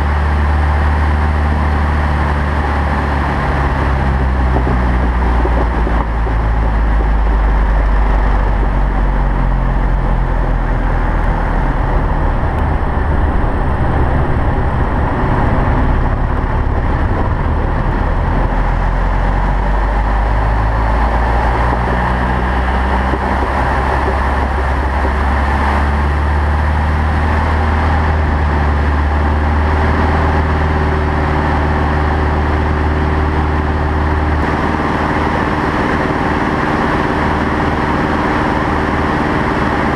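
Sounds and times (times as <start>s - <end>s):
air rushing past canopy: 0.0s - 39.9s
propeller plane engine: 0.0s - 39.9s.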